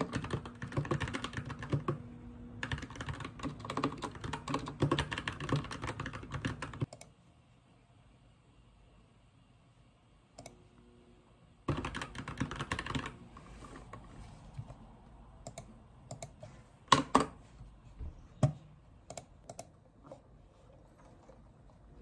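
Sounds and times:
keyboard typing: 0:00.0 - 0:07.1, 0:11.7 - 0:13.2, 0:15.4 - 0:17.3, 0:18.4 - 0:19.8.

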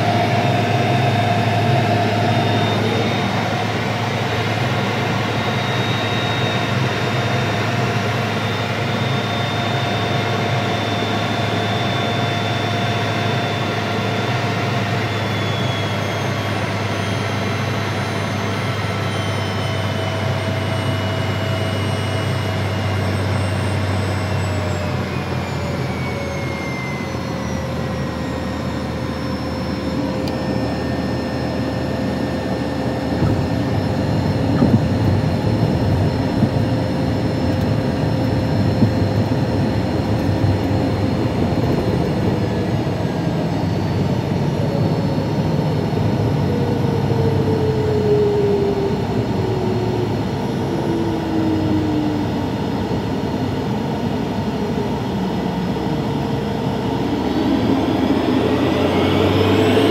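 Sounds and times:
jet engine in cabin: 0:00.0 - 0:59.9
whine falling in pitch: 0:15.0 - 0:59.9
wheels rumbling on runway: 0:29.3 - 0:59.9.

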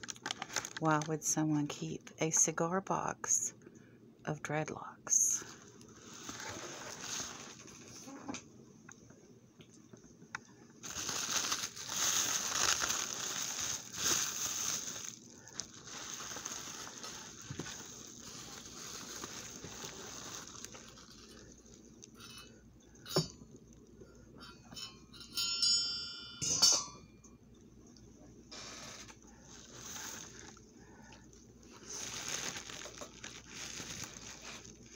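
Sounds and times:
bubble wrap rustling and crinkling: 0:00.0 - 0:01.2, 0:05.4 - 0:08.2, 0:10.8 - 0:22.2, 0:28.5 - 0:34.9.

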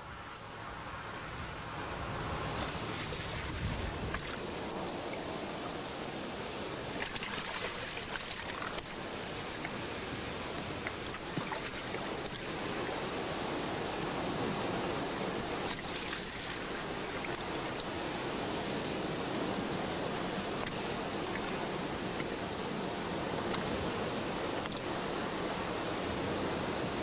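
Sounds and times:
small waves lapping on rocky shore: 0:02.1 - 0:27.0
faint splashes: 0:02.5 - 0:05.5, 0:06.8 - 0:13.1, 0:15.2 - 0:18.0.

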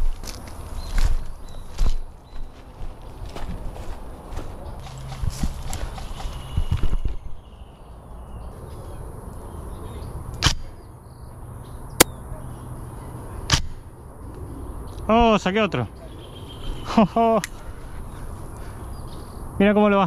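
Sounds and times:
rustling of movement: 0:00.0 - 0:07.2.

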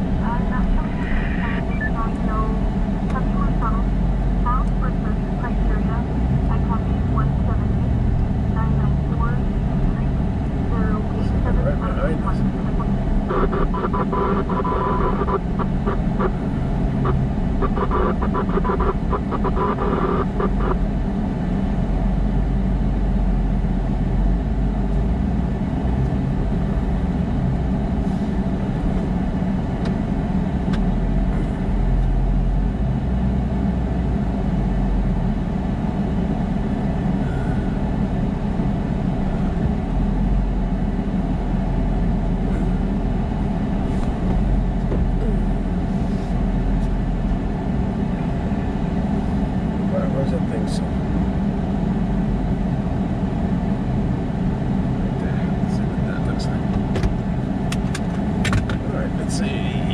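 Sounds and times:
road and engine noise in car: 0:00.0 - 0:59.9
high broken tone: 0:00.1 - 0:20.9.

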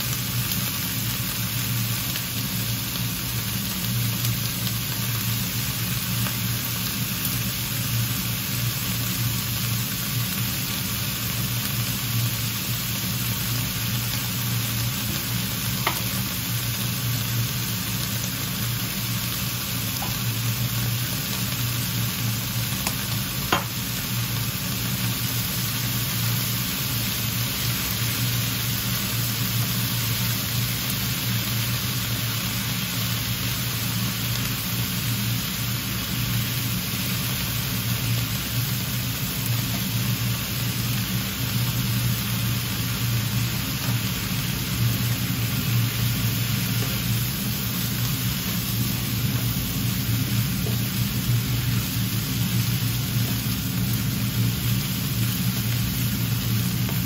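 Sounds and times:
food sizzling in a frying pan: 0:00.0 - 0:57.0.

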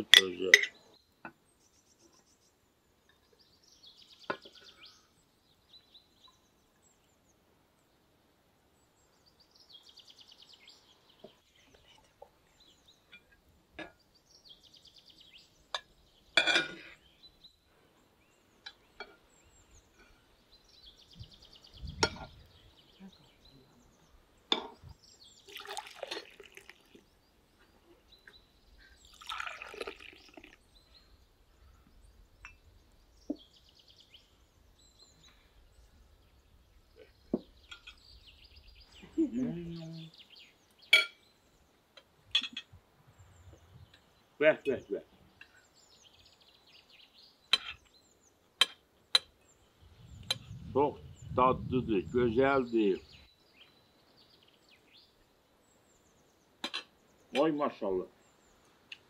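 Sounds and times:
tableware clinks and knocks: 0:00.1 - 0:00.8, 0:16.4 - 0:16.9, 0:42.4 - 0:42.7
liquid poured into glass cups: 0:25.4 - 0:27.2, 0:29.0 - 0:30.8.

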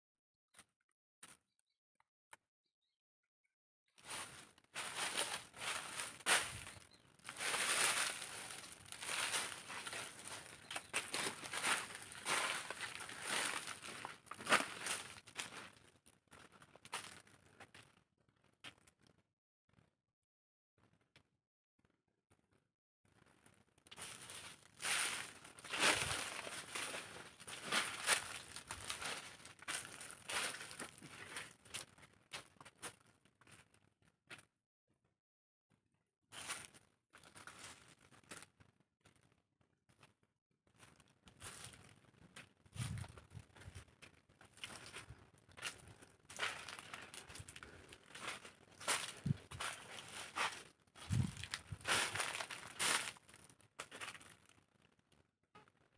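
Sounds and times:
dry leaves rustling and crunching: 0:04.0 - 0:15.8, 0:23.9 - 0:31.9, 0:41.4 - 0:41.9, 0:44.5 - 0:54.4
footsteps on dry leaves: 0:04.0 - 0:15.8, 0:23.9 - 0:32.5, 0:41.4 - 0:41.9, 0:42.8 - 0:54.4.

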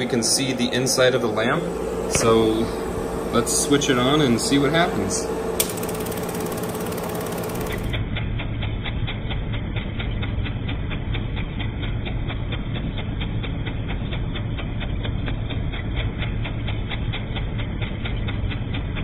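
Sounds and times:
film projector motor hum: 0:00.4 - 0:08.1
rhythmic projector clicking: 0:05.6 - 0:08.2.

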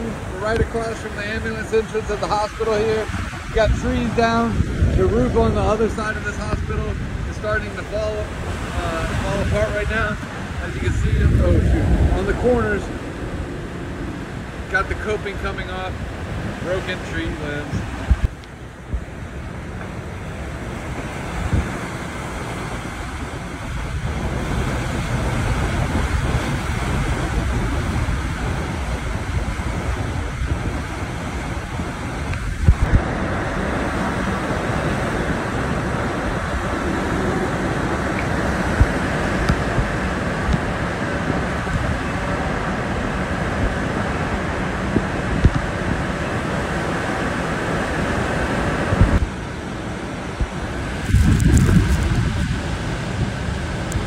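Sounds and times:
strong wind buffeting microphone: 0:00.0 - 0:54.0.

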